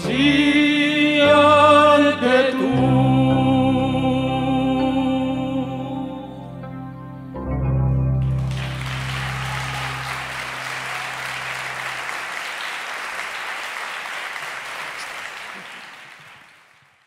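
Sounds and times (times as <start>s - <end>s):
audience applauding: 8.2s - 17.0s.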